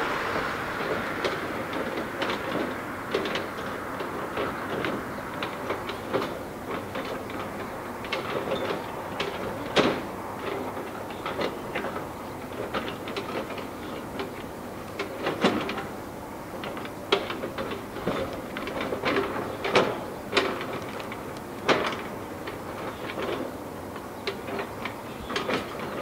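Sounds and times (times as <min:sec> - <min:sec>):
jet engines roaring at take-off: 0:00.0 - 0:06.7.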